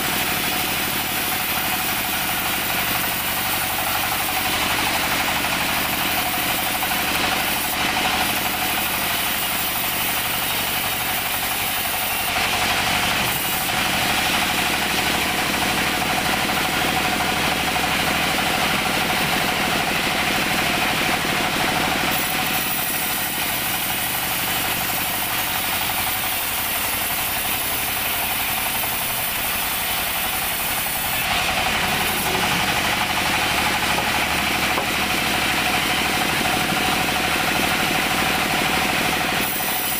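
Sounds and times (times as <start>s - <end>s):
band sawmill running: 0.0s - 39.9s.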